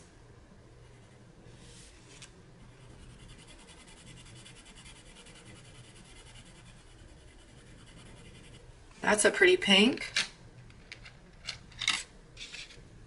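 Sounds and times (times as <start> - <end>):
colored pencil scratching on paper: 2.6 - 8.7.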